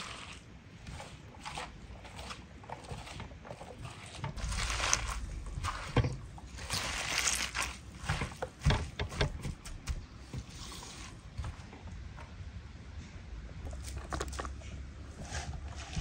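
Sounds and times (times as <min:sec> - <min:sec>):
hands squeezing wet onions: 0:00.0 - 0:08.7.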